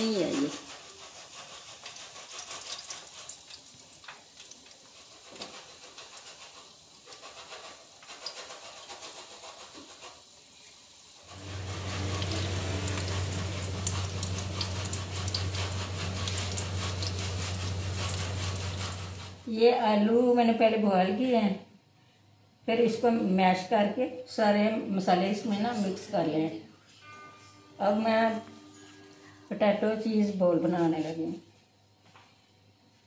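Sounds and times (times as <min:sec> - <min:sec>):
frying sizzling in hot oil: 0:00.0 - 0:19.5
steady low hum: 0:11.2 - 0:20.1.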